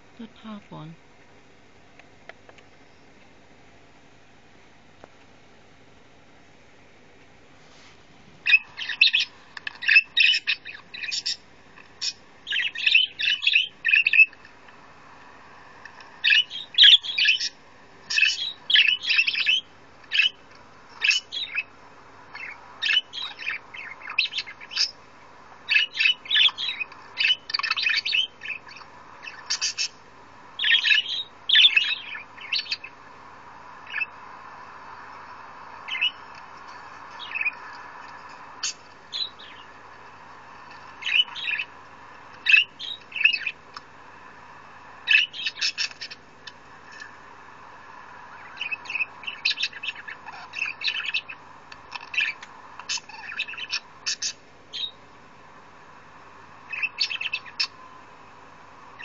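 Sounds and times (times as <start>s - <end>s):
parakeet chirping: 8.4s - 14.4s, 16.2s - 25.0s, 25.6s - 33.1s, 33.8s - 43.7s, 45.0s - 47.2s, 48.3s - 55.0s, 56.6s - 57.8s.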